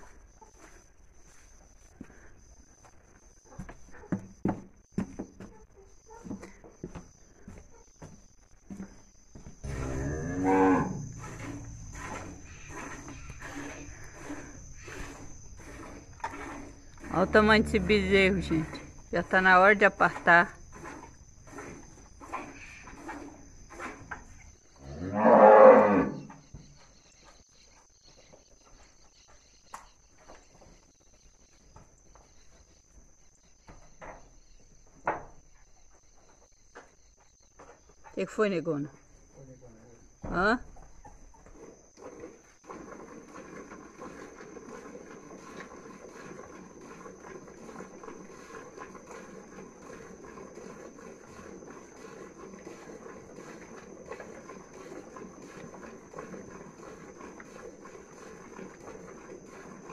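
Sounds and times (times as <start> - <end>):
cow mooing: 9.6 - 13.4, 17.0 - 18.8, 24.8 - 26.3
milk squirting into a pail: 11.2 - 18.0, 42.0 - 59.9.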